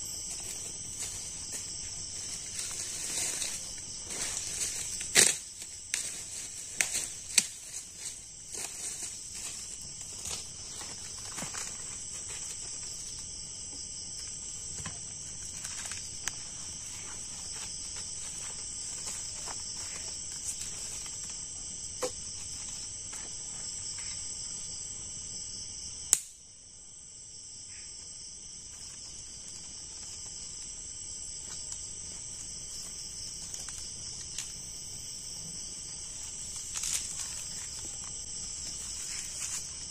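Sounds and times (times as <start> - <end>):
night insects chirring: 0.0 - 39.9
bamboo sticks clicking: 26.1 - 26.4.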